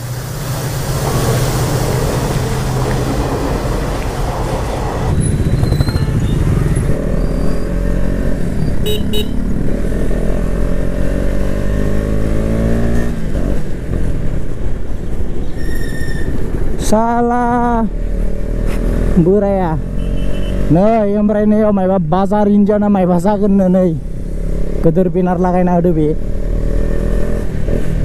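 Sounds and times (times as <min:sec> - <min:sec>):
motorcycle engine accelerating: 0:05.1 - 0:13.7.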